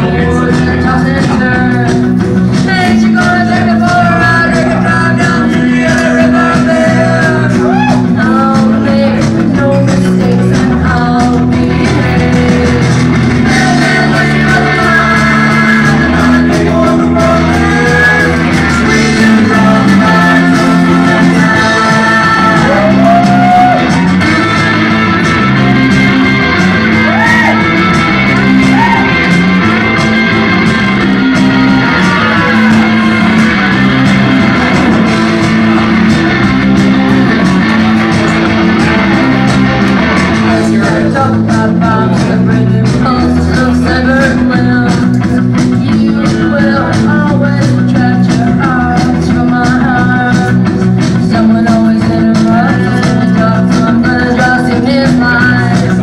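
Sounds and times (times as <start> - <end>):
person singing: 0.0 - 56.0
punk rock song: 0.0 - 56.0.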